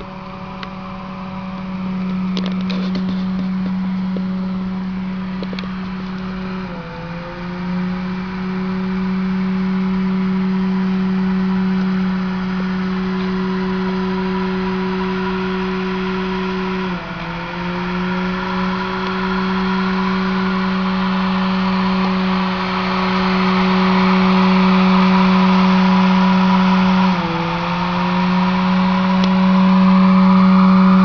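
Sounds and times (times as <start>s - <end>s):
laboratory equipment humming: 0.0s - 31.0s.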